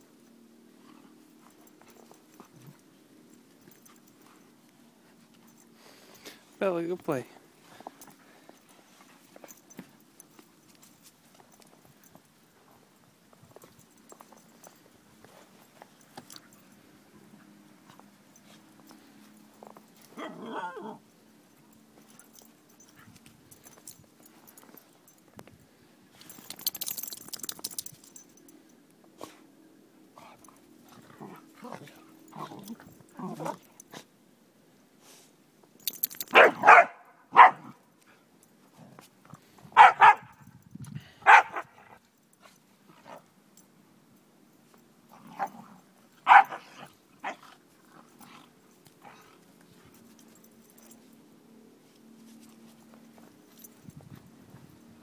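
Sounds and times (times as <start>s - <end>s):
dog growling bark: 20.1s - 21.0s
dogs barking: 36.3s - 37.7s, 39.8s - 40.4s, 41.2s - 41.8s, 46.2s - 47.4s.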